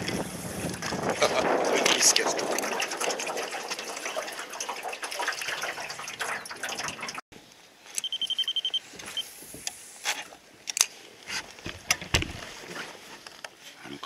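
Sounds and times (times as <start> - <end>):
water lapping against boat hull: 0.7 - 7.2.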